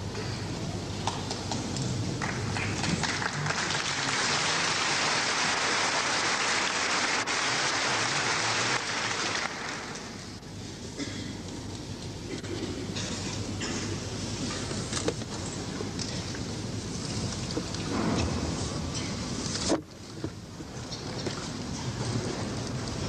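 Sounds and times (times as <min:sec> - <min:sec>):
audience applauding: 0:02.2 - 0:10.4.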